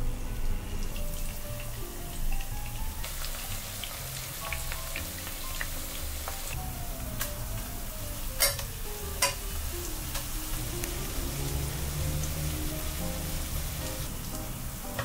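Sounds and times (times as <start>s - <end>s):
food sizzling in oil: 0.0s - 15.0s
metal tongs knocking pan: 8.4s - 9.4s.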